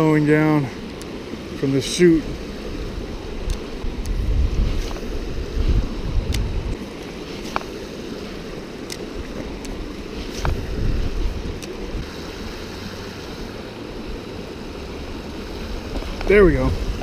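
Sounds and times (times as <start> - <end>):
river water rushing over rocks: 0.0 - 17.0
wind rumble on microphone: 2.2 - 6.8, 9.1 - 17.0.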